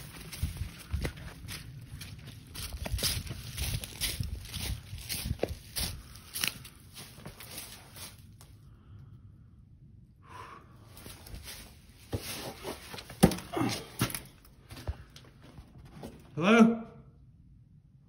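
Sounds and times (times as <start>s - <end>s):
footsteps on debris: 0.0s - 8.6s, 11.0s - 16.2s.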